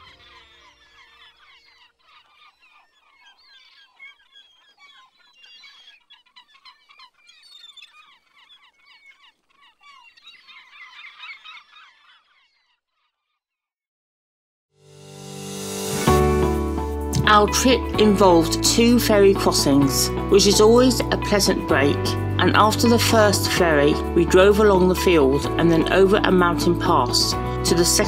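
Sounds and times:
birds chirping: 0.0 - 13.4
background music: 14.8 - 28.0.

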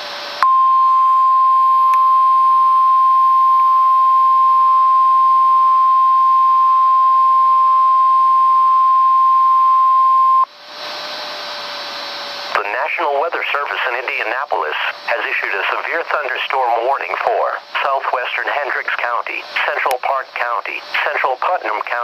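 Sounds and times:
high single-pitched alarm beep: 0.4 - 10.5
radio static hiss: 12.5 - 22.0.

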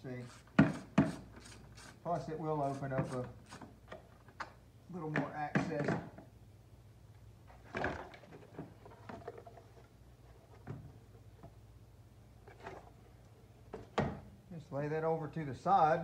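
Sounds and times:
plastic knocks clunks and scrapes: 0.5 - 1.3.

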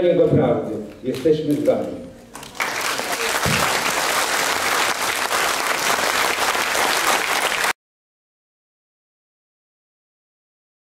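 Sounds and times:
audience applauding: 2.4 - 7.8.

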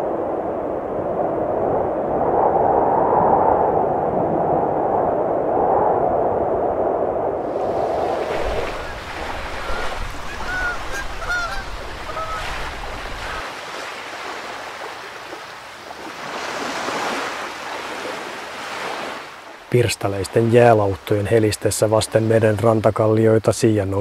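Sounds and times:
sea water washing against rocks: 7.4 - 20.7
small waves lapping over rock: 7.6 - 19.7
short bird calls: 8.6 - 13.4.

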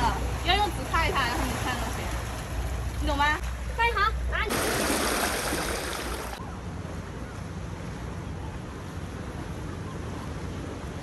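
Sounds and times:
seawater rushing over rocks: 4.4 - 6.4.

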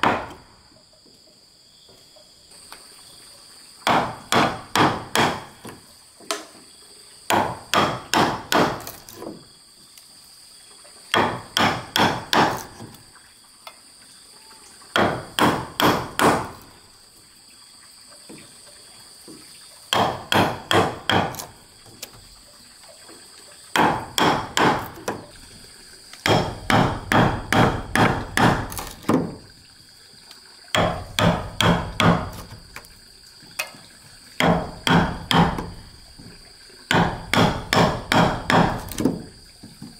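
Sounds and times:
mallet striking wood chisel: 0.0 - 0.4, 3.8 - 5.6, 7.3 - 8.9, 11.1 - 12.8, 15.0 - 16.6, 19.9 - 21.5, 23.8 - 25.0, 26.2 - 29.1, 30.7 - 32.5, 34.4 - 35.7, 36.9 - 39.0
high insect drone: 0.0 - 39.9.

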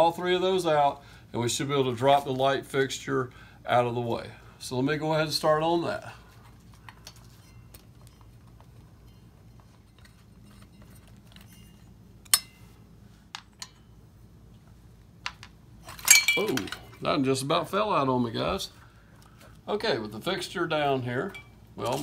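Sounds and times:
metal and glass parts clinking: 15.8 - 17.0.

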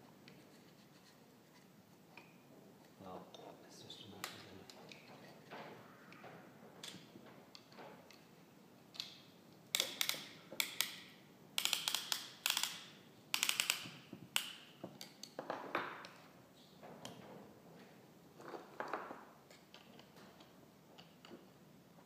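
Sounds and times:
metallic clicks and rattles: 11.6 - 15.4.

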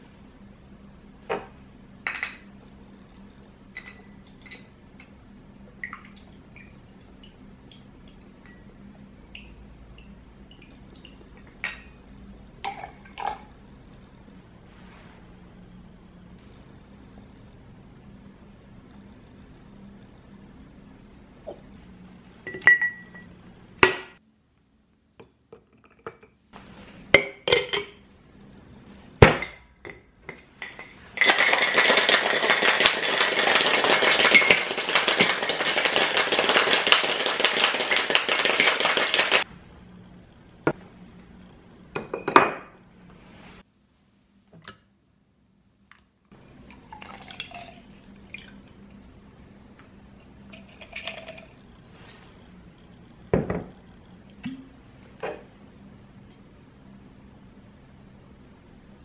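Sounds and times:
glass and ice clinking: 1.3 - 4.8, 8.4 - 9.0, 11.4 - 12.0, 12.6 - 13.4, 22.4 - 24.1, 27.2 - 28.0, 30.6 - 39.4, 46.7 - 48.6, 50.2 - 51.6
cocktail shaker rattling with ice: 31.1 - 39.4, 50.5 - 51.6
drink trickling into glass: 46.7 - 48.6.

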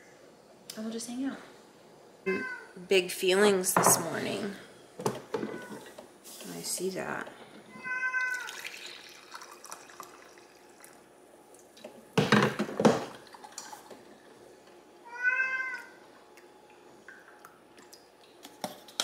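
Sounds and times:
cat meowing: 2.3 - 2.7, 7.7 - 8.6, 15.0 - 16.0
coffee pouring into mug: 8.2 - 11.1.

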